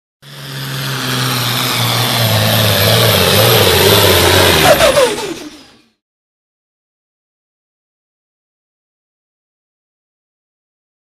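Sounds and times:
diesel tractor at full throttle: 0:00.2 - 0:06.0.

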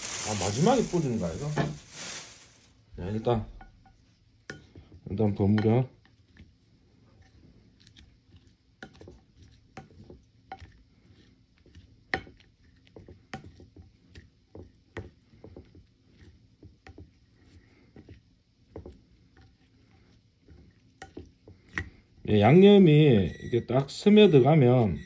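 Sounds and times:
faint wet squishes: 0:04.5 - 0:22.2.

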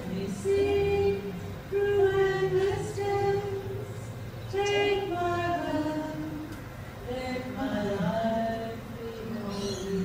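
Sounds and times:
woman singing into a microphone: 0:00.0 - 0:10.0.

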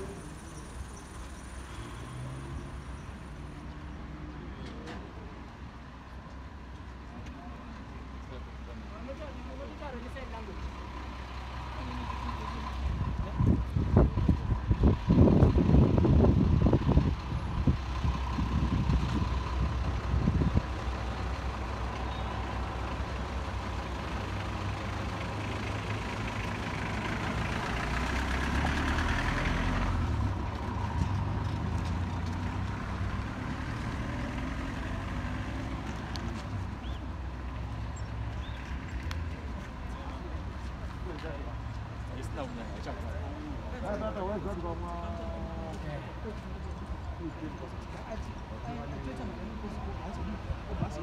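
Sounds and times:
vehicle engine rumble: 0:00.0 - 0:51.0.

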